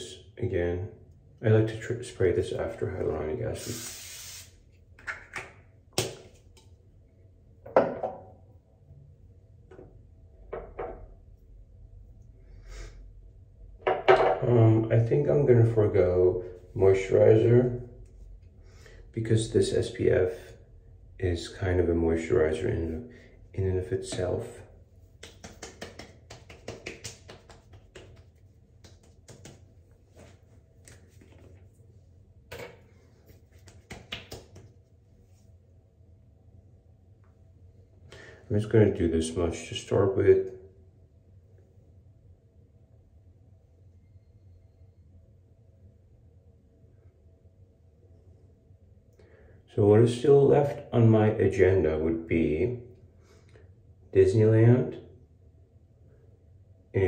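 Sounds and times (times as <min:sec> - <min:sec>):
hands patting skin: 0:25.0 - 0:31.7, 0:33.2 - 0:34.9.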